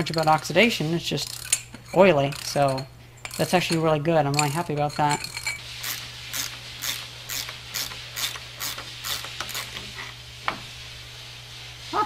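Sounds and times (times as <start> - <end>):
ratchet wrench clicking: 1.2 - 1.6, 5.2 - 9.7.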